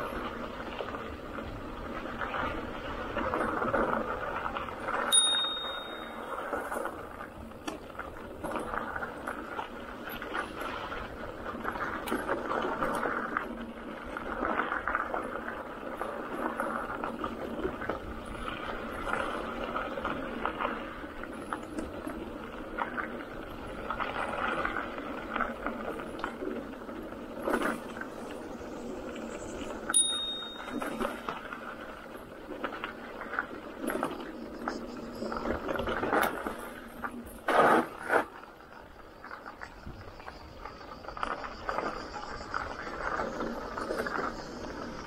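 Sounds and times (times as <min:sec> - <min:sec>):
bicycle rolling and rattling: 0:00.0 - 0:45.0
bicycle bell ring: 0:05.1 - 0:06.8, 0:29.9 - 0:31.3.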